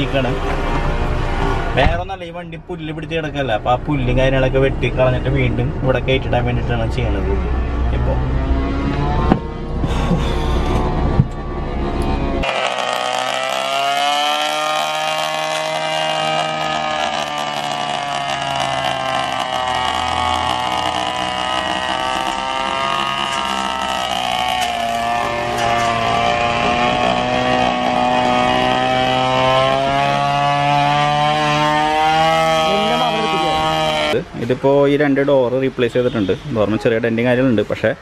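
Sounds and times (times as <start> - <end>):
brush cutter engine cutting grass: 12.4 - 34.2.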